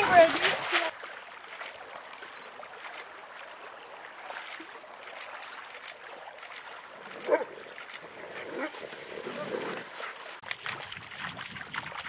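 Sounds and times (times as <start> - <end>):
dogs running over leaves: 0.0 - 0.9, 8.1 - 10.4.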